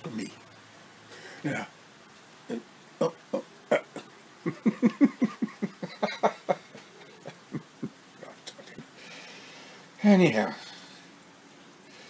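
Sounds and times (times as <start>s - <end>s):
man laughing: 3.0s - 8.8s.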